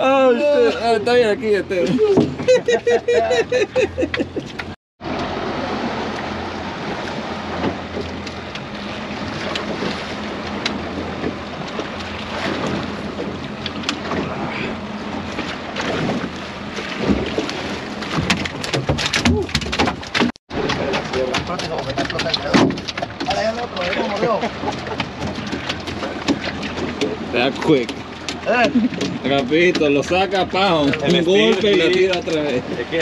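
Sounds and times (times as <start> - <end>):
sea water washing around boat: 0.0 - 33.0
sharp knocks: 18.1 - 23.4.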